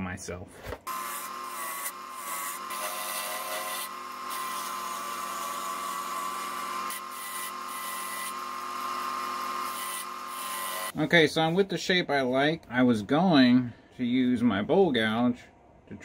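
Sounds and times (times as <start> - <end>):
turning tool scraping wood: 0.8 - 10.9
wood lathe motor whine: 0.9 - 10.9.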